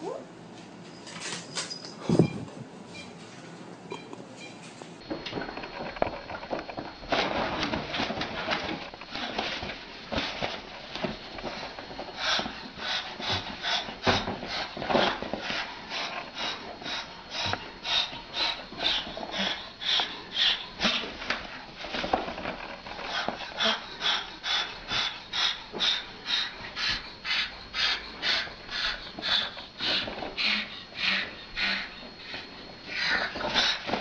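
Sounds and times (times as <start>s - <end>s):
cockatoo hissing: 23.1s - 33.9s.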